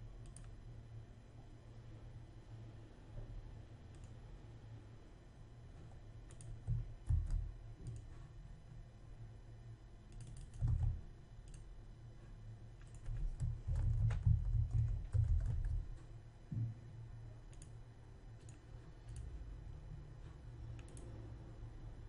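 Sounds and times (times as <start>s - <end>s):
computer mouse clicks: 0.2s - 0.6s, 3.9s - 4.2s, 6.3s - 8.3s, 10.1s - 11.7s, 12.8s - 16.1s, 17.5s - 17.8s, 18.4s - 19.3s, 20.7s - 21.2s
keyboard keystrokes: 6.3s - 8.1s, 10.1s - 11.6s, 12.8s - 15.9s.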